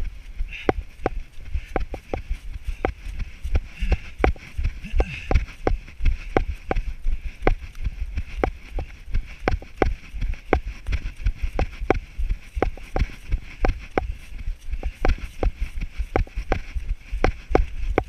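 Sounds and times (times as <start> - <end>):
footsteps running on muddy trail: 0.0 - 18.0.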